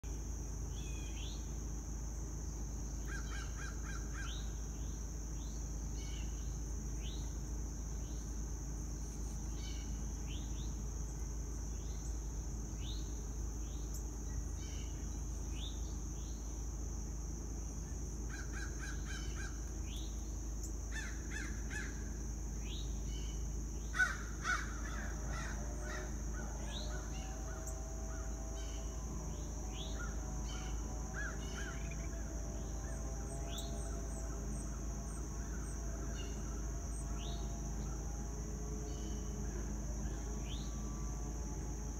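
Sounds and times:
insect drone: 0:00.0 - 0:41.9
small birds chirping and trilling: 0:22.6 - 0:38.1.

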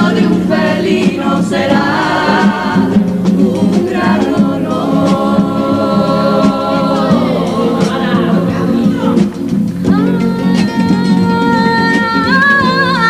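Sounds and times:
mixed choir singing in harmony: 0:00.0 - 0:09.5
bass drum: 0:00.0 - 0:13.0
guitars: 0:00.0 - 0:13.0.

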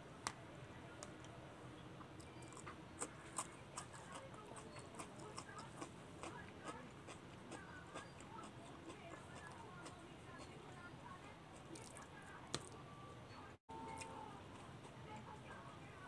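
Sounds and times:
wet chewing mouth clicks: 0:02.1 - 0:10.6, 0:11.7 - 0:12.8.

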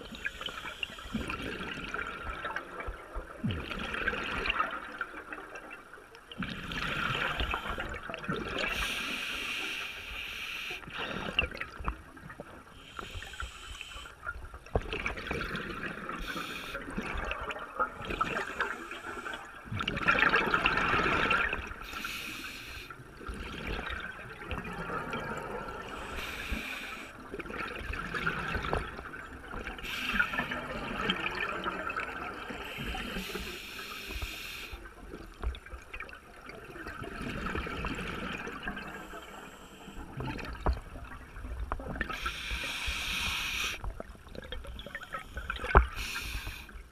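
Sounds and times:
gurgling exhaled bubbles: 0:00.0 - 0:05.8, 0:06.4 - 0:09.0, 0:10.9 - 0:13.3, 0:14.7 - 0:22.0, 0:23.0 - 0:33.4, 0:35.1 - 0:46.9
hissing regulator inhales: 0:08.7 - 0:10.8, 0:12.8 - 0:14.1, 0:21.8 - 0:22.9, 0:26.0 - 0:27.1, 0:32.6 - 0:34.8, 0:42.2 - 0:43.8, 0:45.2 - 0:46.8.

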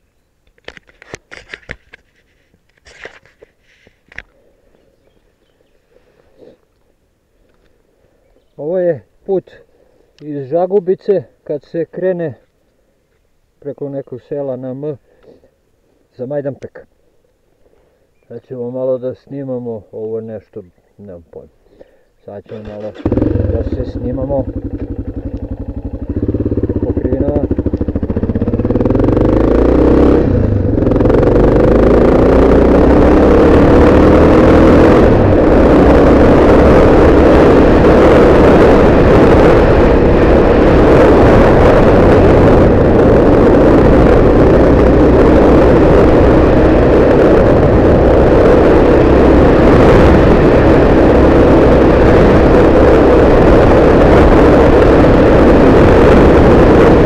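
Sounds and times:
motorcycle engine accelerating: 0:22.5 - 0:57.0
wind on microphone: 0:23.0 - 0:57.0.

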